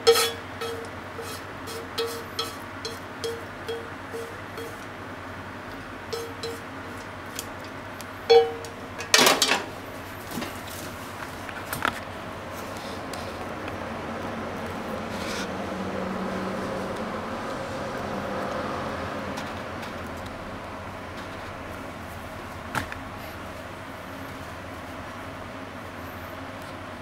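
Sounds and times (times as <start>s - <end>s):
pan clattering on stove grate: 0.0s - 4.8s, 6.2s - 6.7s, 8.3s - 9.7s
chopsticks tapping frying pan: 0.0s - 5.0s, 6.1s - 9.6s
faint hum: 0.0s - 27.0s.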